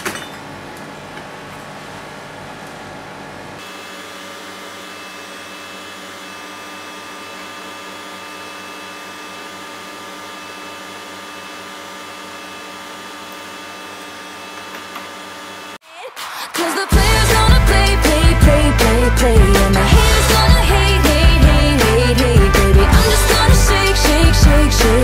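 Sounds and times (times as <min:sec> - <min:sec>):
electric appliance motor whirring: 0:01.0 - 0:15.8.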